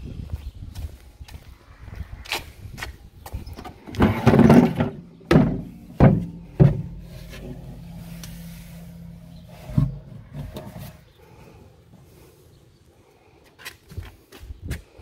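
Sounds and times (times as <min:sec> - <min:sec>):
low steady hum: 0:05.2 - 0:11.9
plastic lid scraping rustle: 0:06.2 - 0:11.2.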